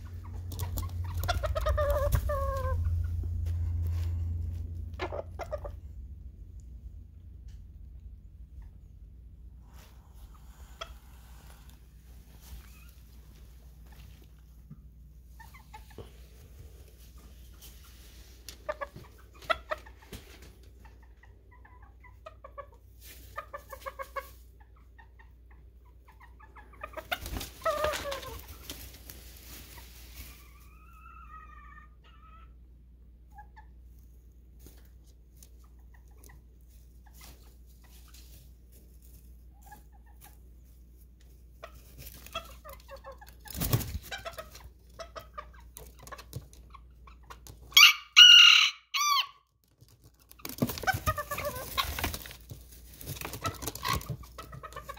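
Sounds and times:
rustling: 0.0 - 6.1, 9.6 - 20.8, 26.9 - 31.0, 34.6 - 47.7, 49.6 - 54.9
chickens clucking: 0.0 - 6.4, 7.0 - 49.2, 50.0 - 54.9
chicken squawk: 0.2 - 3.2, 47.7 - 49.4.

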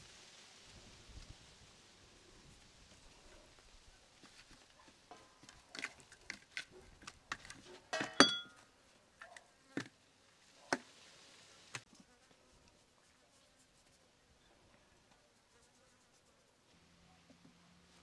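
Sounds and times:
metal tray clinking: 7.9 - 8.6.

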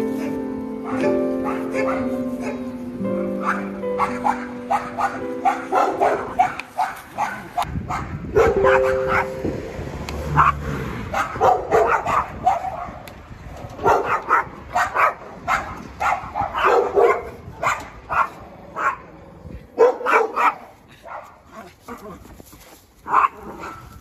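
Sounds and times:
dog barking: 0.2 - 2.7, 3.4 - 9.4, 10.4 - 13.0, 13.8 - 19.1, 19.8 - 21.6, 23.1 - 24.0.

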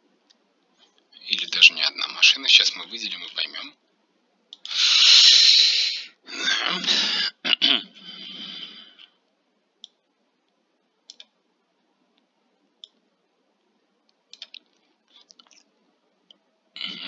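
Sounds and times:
computer mouse clicking: 9.8 - 11.4, 12.2 - 13.0, 14.1 - 16.4.

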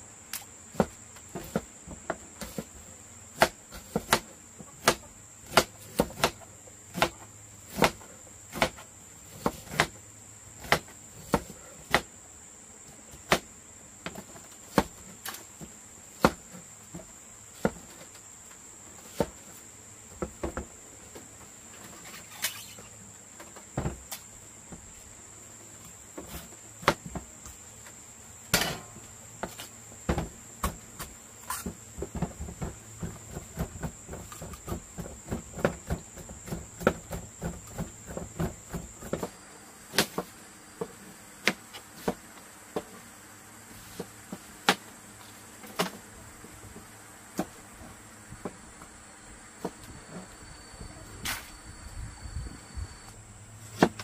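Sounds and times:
high insect buzz: 0.0 - 42.0, 47.9 - 54.0
knives chopping on cutting boards: 3.4 - 10.0, 28.5 - 30.8.

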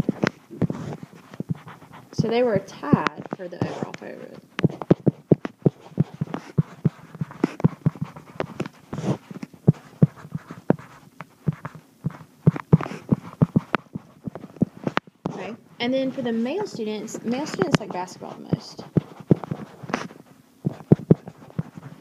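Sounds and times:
stylus tapping on touchscreen: 2.8 - 9.1.

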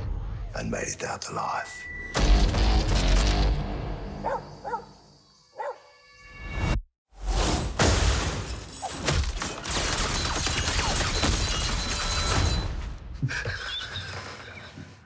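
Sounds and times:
man laughing: 13.1 - 14.5.

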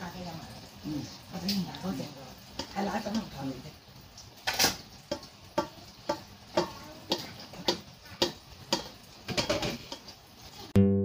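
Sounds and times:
metal colander clinking on bowl: 4.5 - 10.1.

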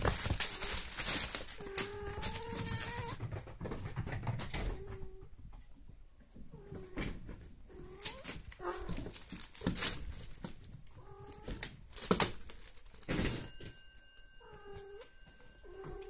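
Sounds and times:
kittens calling: 0.0 - 3.3, 7.7 - 10.0
kittens scuffling and knocking: 0.0 - 16.0.

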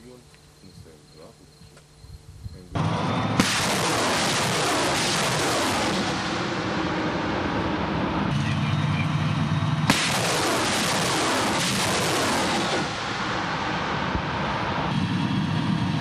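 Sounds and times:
rocket motors roaring: 2.5 - 16.0
rocket launch bang: 3.3 - 8.4, 9.8 - 16.0.

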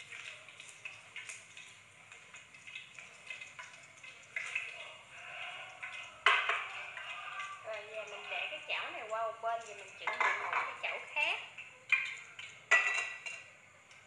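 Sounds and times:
hot oil crackling in pan: 0.0 - 14.0
cookware clanking: 5.8 - 7.2, 10.0 - 11.0, 11.9 - 13.5.

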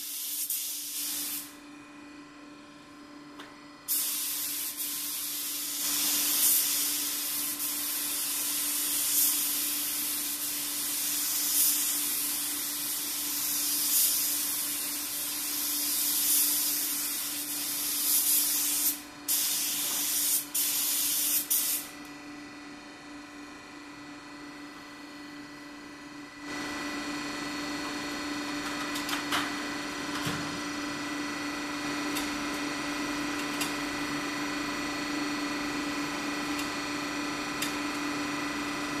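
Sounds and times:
air spray gun hissing: 0.0 - 1.6, 3.9 - 21.9
steady hum: 0.0 - 39.0.

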